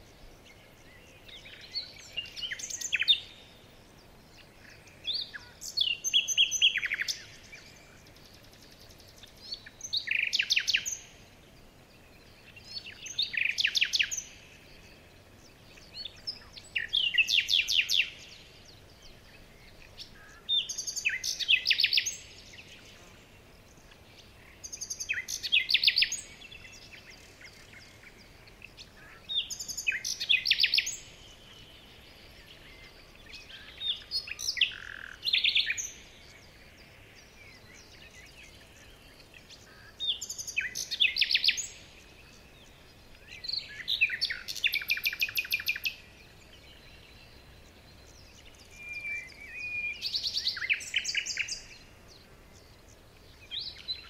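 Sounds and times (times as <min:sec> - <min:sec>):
songbird trilling: 0:04.6 - 0:08.4, 0:09.2 - 0:11.2, 0:12.4 - 0:15.1, 0:15.8 - 0:22.8, 0:23.8 - 0:36.4, 0:37.2 - 0:51.9.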